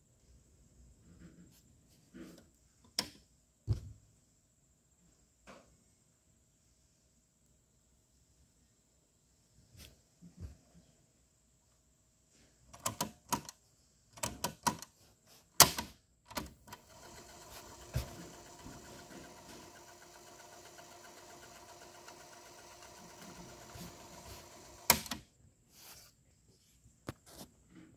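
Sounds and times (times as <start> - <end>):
tape mechanism clack: 15.6 - 25.2
tape mechanism whirring: 16.3 - 25.2.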